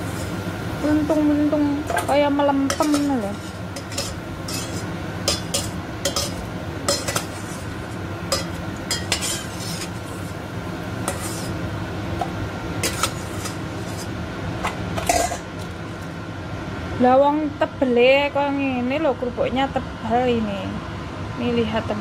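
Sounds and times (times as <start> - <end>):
metal spatula scraping a pot: 0.0 - 0.4, 1.9 - 10.4, 11.0 - 11.6, 12.8 - 14.2.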